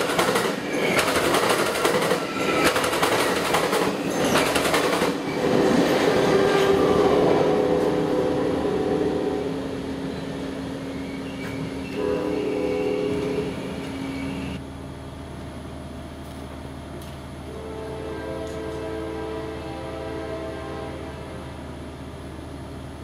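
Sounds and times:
train wheels clicking over rail joints: 0.0 - 6.7.

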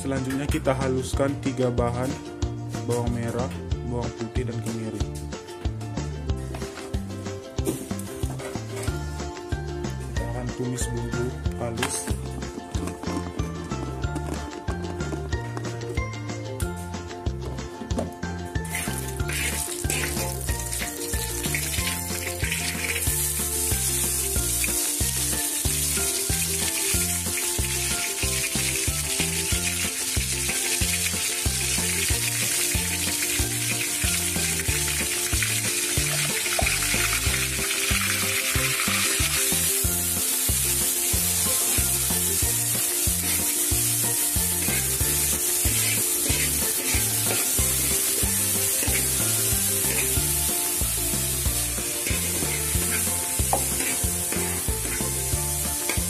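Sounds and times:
background music: 0.0 - 56.0
paste sizzling in hot oil: 18.6 - 56.0
spatula scraping a wok: 18.7 - 20.4, 43.1 - 56.0.

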